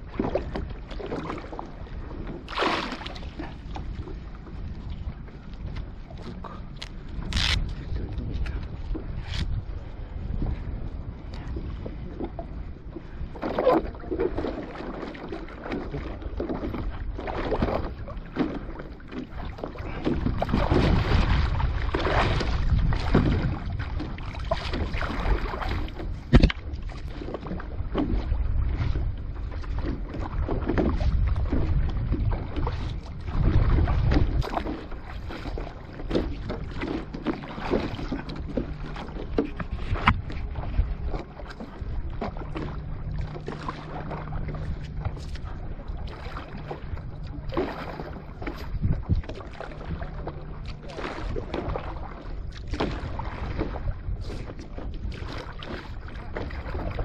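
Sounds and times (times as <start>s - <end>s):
wind buffeting microphone: 0.0s - 57.0s
water splashing against board: 2.4s - 3.8s, 13.4s - 28.2s, 32.2s - 40.4s.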